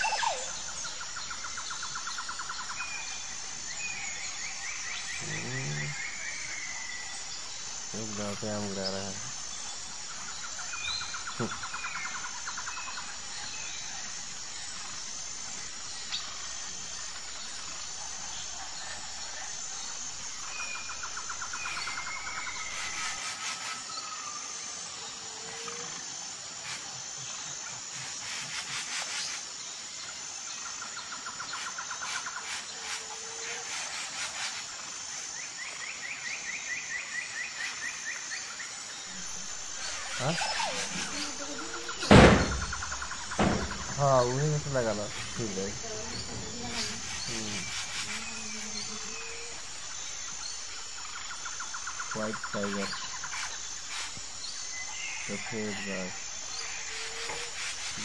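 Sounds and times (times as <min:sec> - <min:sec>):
birds chirping: 0:00.0 - 0:24.1, 0:35.7 - 0:58.0
high pulsing insect chirp: 0:00.0 - 0:58.0
bird trills: 0:39.1 - 0:55.8.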